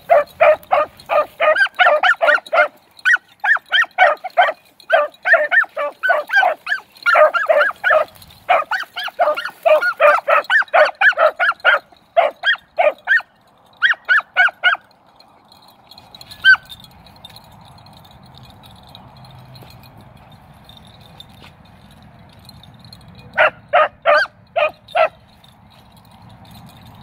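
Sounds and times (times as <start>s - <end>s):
beagles barking: 0.0s - 14.9s, 15.6s - 16.9s, 23.3s - 26.6s.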